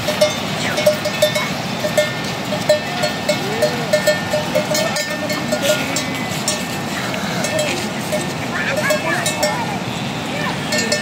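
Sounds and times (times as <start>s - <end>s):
livestock bells clanking: 0.0s - 11.0s.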